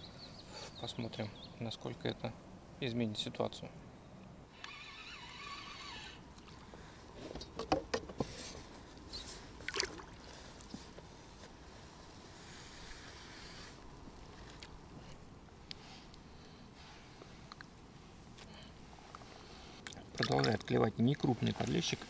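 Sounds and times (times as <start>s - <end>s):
water splashing: 9.6s - 10.4s, 19.9s - 20.8s.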